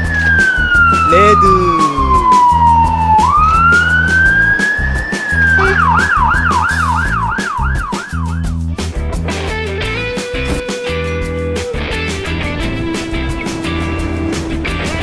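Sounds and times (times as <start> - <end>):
background music with beat: 0.0 - 15.0
siren wailing and yelping: 0.4 - 8.3.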